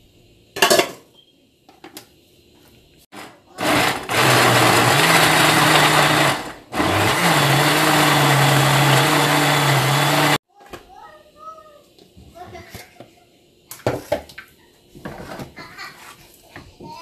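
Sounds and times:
electric blender motor: 3.2 - 10.4.

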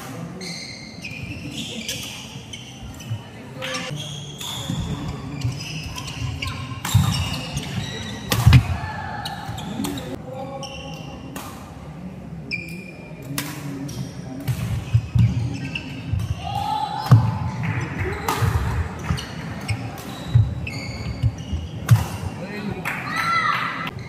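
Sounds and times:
shoe squeaks: 0.3 - 8.6, 9.2 - 11.3, 12.5 - 14.2, 14.8 - 16.4, 19.0 - 22.0
racket striking shuttlecock: 8.3 - 8.7.

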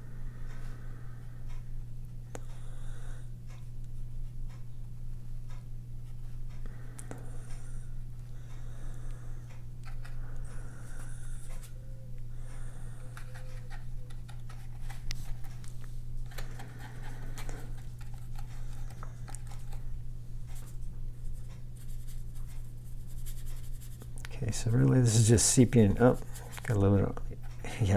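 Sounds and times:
steady low hum: 0.0 - 27.9
paintbrush stroking paper: 21.3 - 24.1.

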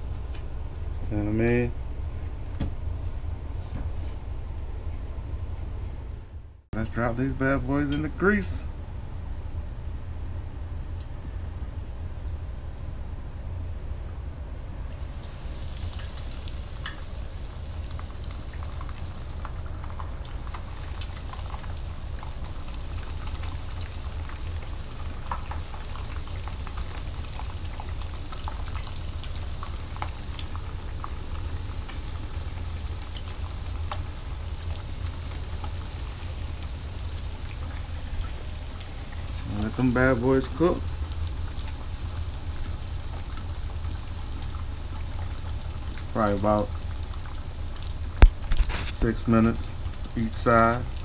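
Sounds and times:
fish deep-frying in oil: 14.8 - 51.0.

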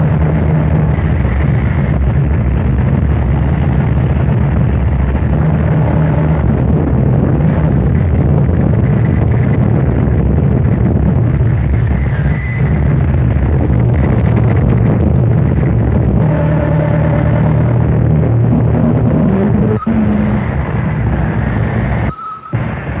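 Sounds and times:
distorted rumbling noise: 0.0 - 23.0
faint high tone: 16.2 - 20.6.

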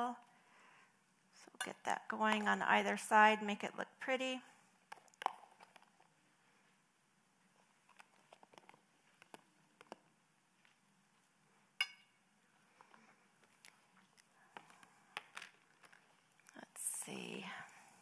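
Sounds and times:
clink: 11.8 - 12.2.

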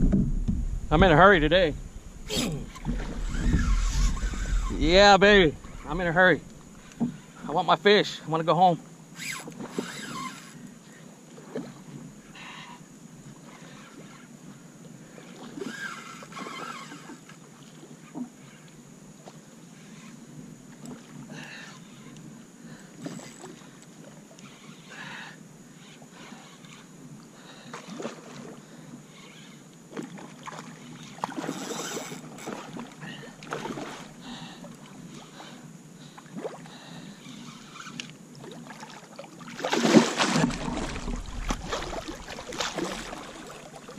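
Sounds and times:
water lapping against kayak: 0.0 - 8.0, 9.1 - 43.9
fishing reel clicks: 9.2 - 10.7, 31.0 - 32.6, 37.2 - 38.2
water splashes: 29.9 - 35.4, 38.4 - 43.9.

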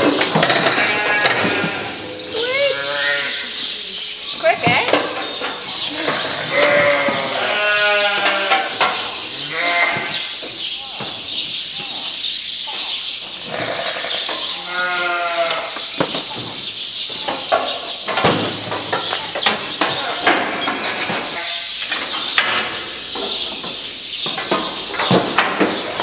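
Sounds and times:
metal gates knocking and clanking: 0.0 - 3.2, 4.4 - 10.3, 15.5 - 26.0
sheep bleating: 0.7 - 3.5, 5.9 - 8.8, 9.4 - 10.2, 13.5 - 15.8.

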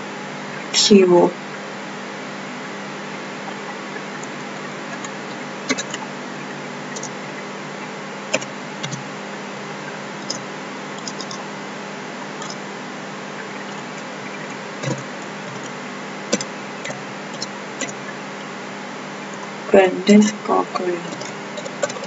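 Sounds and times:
keyboard keystrokes: 8.3 - 9.0.

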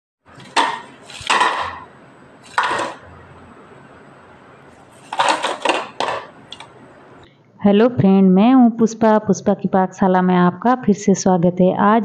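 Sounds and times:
fried snacks clattering into bowl: 0.4 - 3.0, 5.0 - 6.7.

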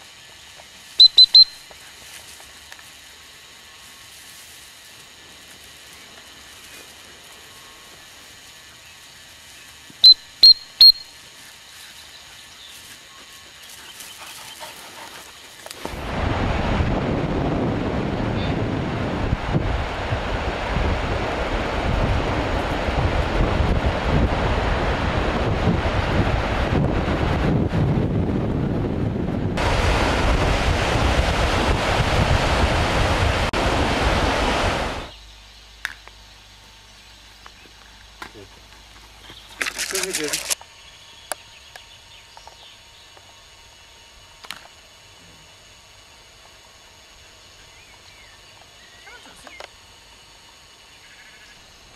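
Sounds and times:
high whistle pips: 1.0 - 1.7, 10.0 - 11.2
surf breaking on beach: 15.9 - 28.5, 29.4 - 35.1
wind buffeting microphone: 15.9 - 35.1.

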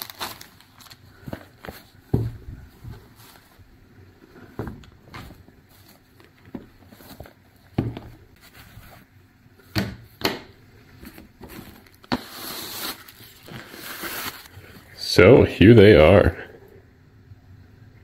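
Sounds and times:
fabric bag rustling: 0.0 - 3.7, 5.2 - 9.2.

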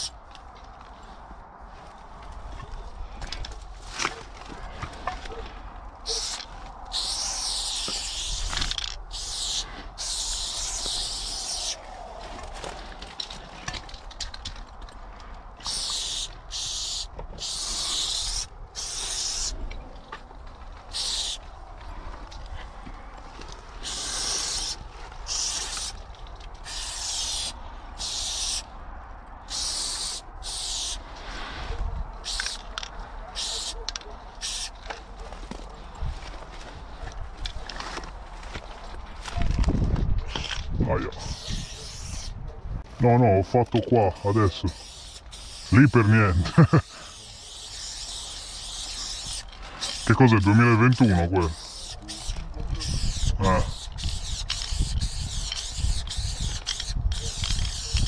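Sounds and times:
spray paint can hissing: 6.1 - 11.8, 15.6 - 19.6, 20.9 - 21.4, 23.8 - 26.0, 26.6 - 28.7, 29.5 - 31.0, 32.2 - 32.8, 33.4 - 33.8, 34.4 - 34.8, 41.2 - 42.3, 44.6 - 50.3, 50.9 - 58.0.

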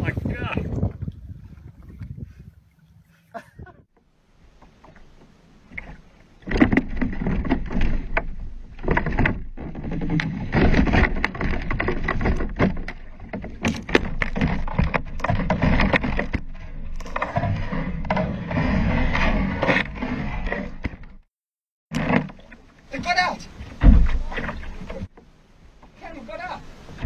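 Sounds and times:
wind: 0.0 - 27.0
water splashing: 4.4 - 21.0, 21.9 - 27.0
knocks against kayak hull: 23.8 - 25.0.

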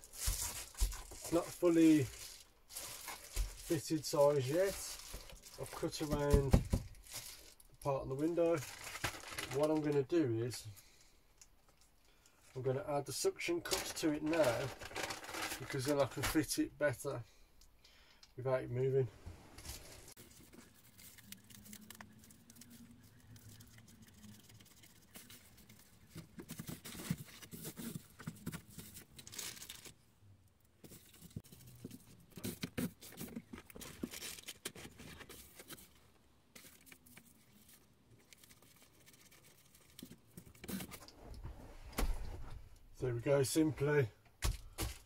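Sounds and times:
foil insulation crinkling: 0.0 - 10.6, 13.4 - 16.6, 19.6 - 30.0, 30.7 - 41.1.

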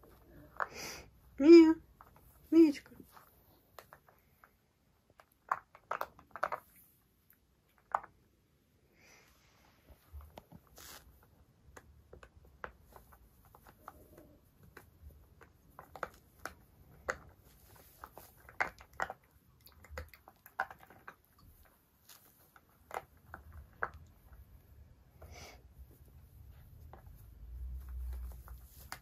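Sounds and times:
puppy chewing rubber ball: 3.2 - 7.0, 10.2 - 29.0.

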